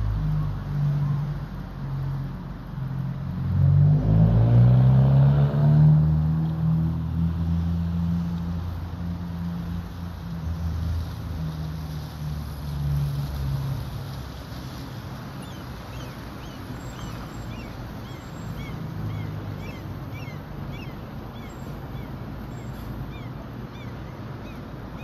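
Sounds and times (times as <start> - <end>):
bus driving past: 0.0 - 25.0
small birds chirping: 15.4 - 25.0.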